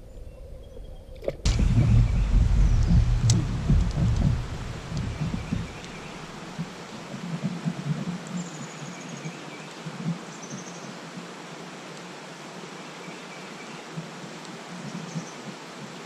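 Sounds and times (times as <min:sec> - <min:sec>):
low rumble: 0:00.0 - 0:06.6
faint steady rustle: 0:01.1 - 0:12.2.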